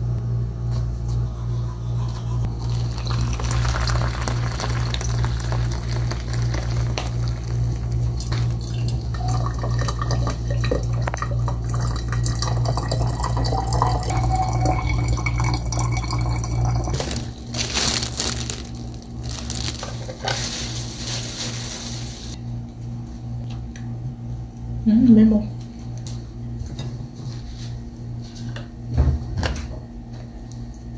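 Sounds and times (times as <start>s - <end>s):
steady low hum: 0.0s - 30.9s
water running and splashing: 2.5s - 8.9s.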